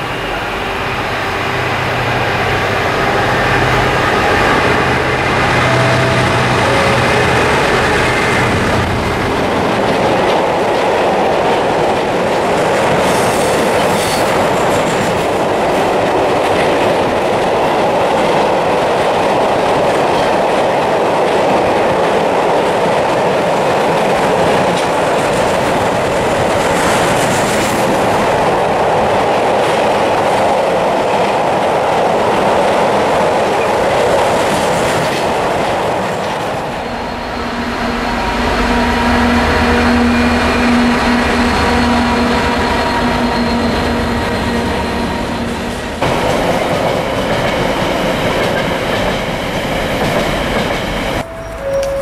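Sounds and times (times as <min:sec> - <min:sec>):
diesel locomotive engine droning: 0:00.0 - 0:52.0
freight wagons rumbling on rails: 0:00.0 - 0:52.0
brief high wheel squeals: 0:51.2 - 0:52.0.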